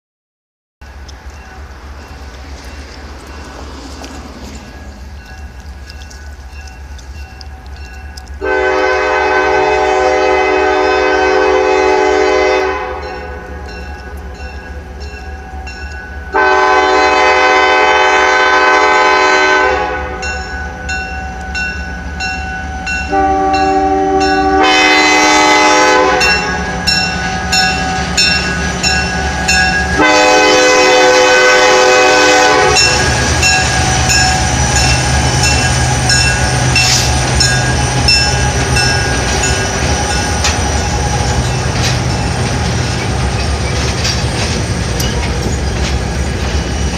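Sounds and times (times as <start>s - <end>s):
locomotive engine humming: 0.8s - 46.9s
train rumbling over bridge: 0.8s - 46.9s
locomotive air horn blasts: 8.4s - 13.8s, 16.3s - 20.5s, 23.0s - 28.3s, 28.9s - 40.4s.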